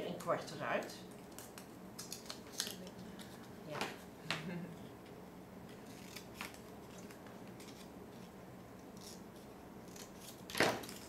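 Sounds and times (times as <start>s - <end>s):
scissors snipping paper: 9.9s - 11.0s.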